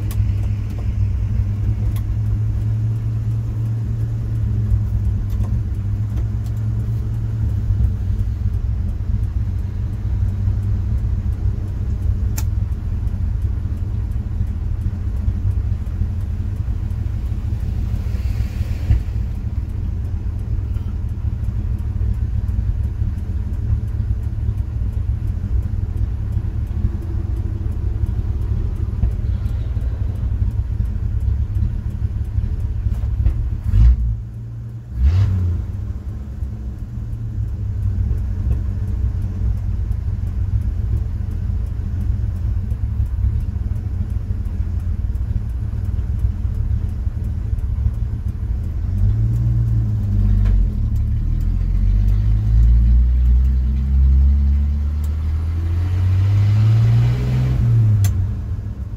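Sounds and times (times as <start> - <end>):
truck engine idling: 0.0 - 34.8
engine revving: 15.4 - 41.8, 47.8 - 58.9.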